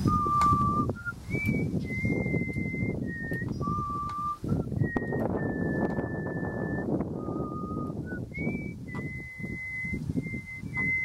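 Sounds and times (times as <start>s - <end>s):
low rustling noise: 0.0s - 11.0s
whistled tune: 0.0s - 11.0s.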